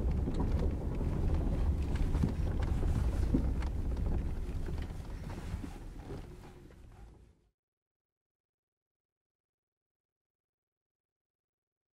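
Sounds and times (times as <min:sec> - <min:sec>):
wind buffeting microphone: 0:00.0 - 0:07.1.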